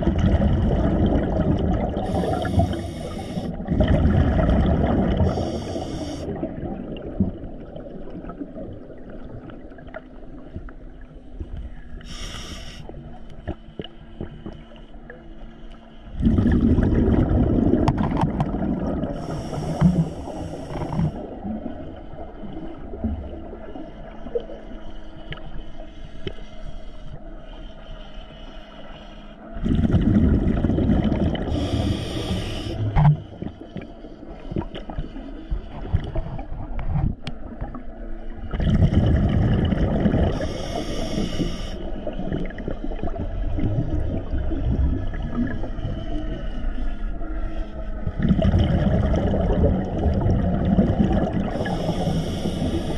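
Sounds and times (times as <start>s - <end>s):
rumbling exhaled bubbles: 0.0s - 10.0s, 16.2s - 21.9s, 29.6s - 33.9s, 38.4s - 41.2s, 42.0s - 46.0s, 48.1s - 52.9s
diver inhaling through regulator: 1.8s - 3.9s, 5.1s - 6.5s, 12.0s - 13.2s, 19.0s - 21.4s, 24.8s - 36.5s, 38.8s - 43.2s, 51.1s - 52.9s.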